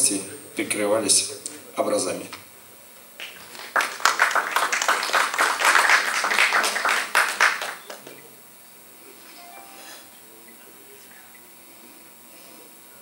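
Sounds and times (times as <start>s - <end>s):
audience clapping: 3.2s - 8.2s.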